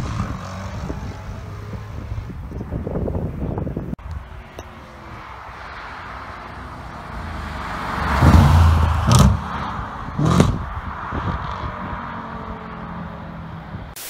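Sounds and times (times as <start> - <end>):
exhaust bangs: 5.6 - 13.9
car engine accelerating: 5.7 - 13.9.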